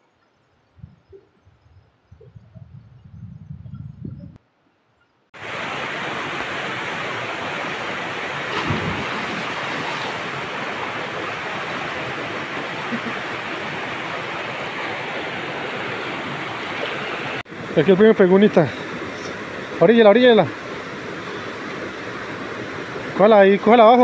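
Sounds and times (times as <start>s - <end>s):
water splash: 5.4s - 17.4s
river water rushing: 5.4s - 24.0s.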